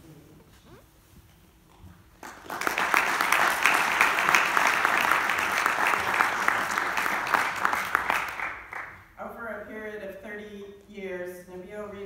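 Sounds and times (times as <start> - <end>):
audience applauding: 2.2 - 9.0.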